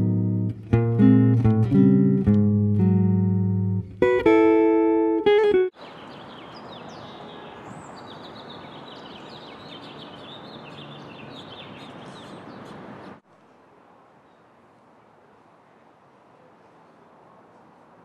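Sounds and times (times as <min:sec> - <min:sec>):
outdoor background noise: 0:00.0 - 0:18.0
birds chirping: 0:05.8 - 0:13.2.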